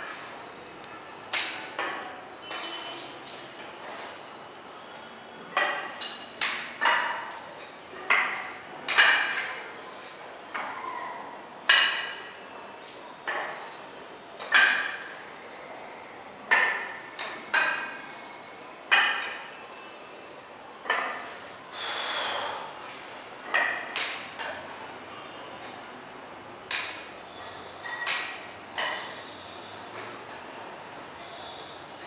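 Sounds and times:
sharp knocks with metallic ring: 5.5s - 7.4s, 8.0s - 9.6s, 11.7s - 12.3s, 14.4s - 15.1s, 16.5s - 18.0s, 18.9s - 19.6s, 23.5s - 24.6s, 26.7s - 29.4s.

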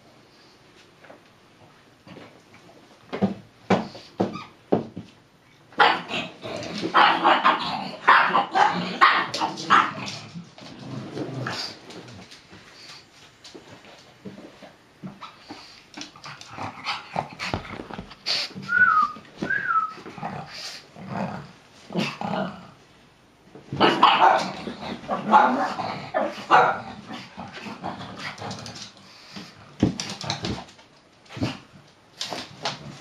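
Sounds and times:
dog barking: 7.0s - 10.0s, 23.8s - 24.5s, 26.5s - 26.8s.

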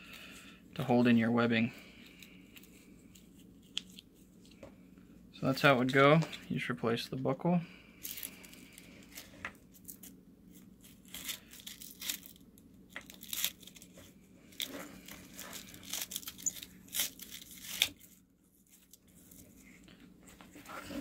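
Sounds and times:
hook-and-loop fastener ripping: 8.1s - 19.4s.

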